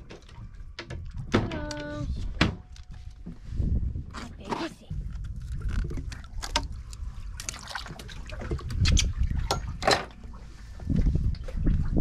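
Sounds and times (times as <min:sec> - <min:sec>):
water splashing and dripping: 0:04.9 - 0:12.0.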